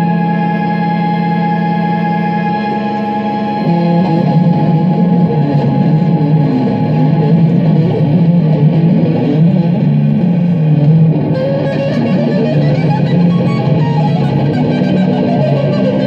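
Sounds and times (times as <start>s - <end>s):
electric guitar playing: 0.0s - 16.0s.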